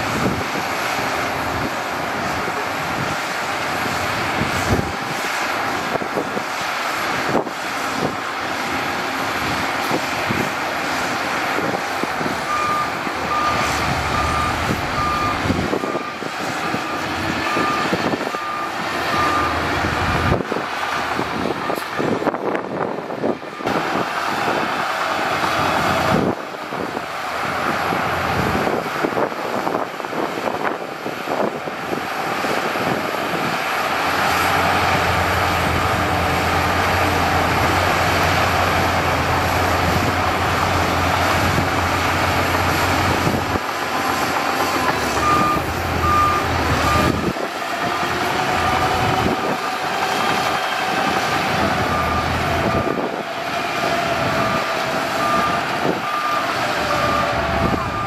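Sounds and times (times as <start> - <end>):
bulldozer diesel engine under load: 0.0 - 58.0
reversing alarm beeping: 11.6 - 20.4, 39.9 - 58.0.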